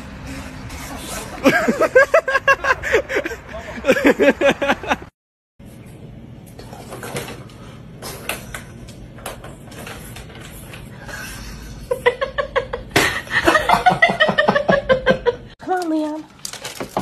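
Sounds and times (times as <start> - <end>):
person laughing hard: 1.4 - 5.1, 11.6 - 15.5.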